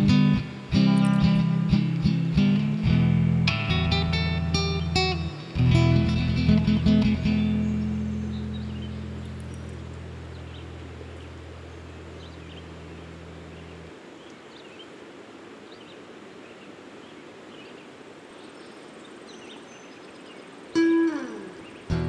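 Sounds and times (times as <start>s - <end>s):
guitar chord: 0.0s - 13.4s, 20.8s - 22.0s
steady outdoor hiss: 0.0s - 22.0s
high bird chirps: 0.9s - 1.5s, 7.2s - 13.8s, 19.4s - 22.0s.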